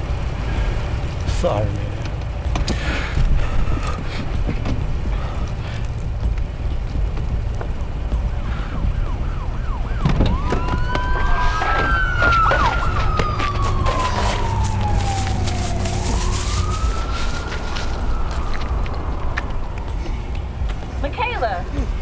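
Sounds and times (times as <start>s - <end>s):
steady low rumble: 0.0s - 22.0s
emergency siren: 8.2s - 21.0s.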